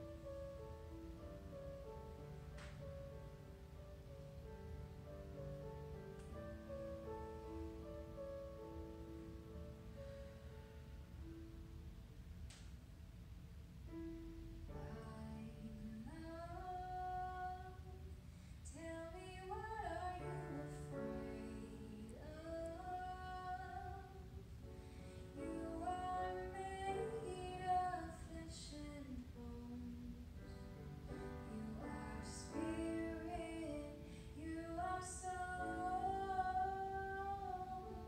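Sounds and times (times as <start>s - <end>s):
woman singing slow melody: 14.8s - 24.5s, 25.3s - 38.0s.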